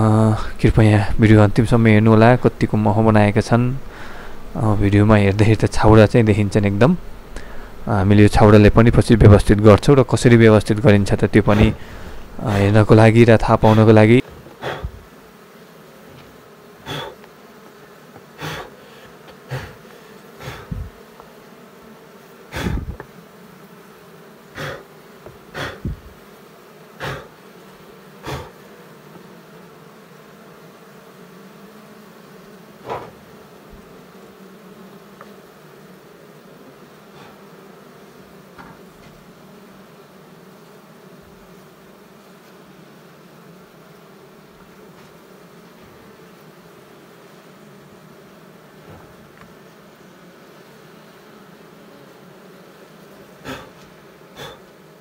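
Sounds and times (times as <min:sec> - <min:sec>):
honey bees humming: 0:00.0 - 0:55.0
loud bumps: 0:11.5 - 0:12.7, 0:25.6 - 0:26.2.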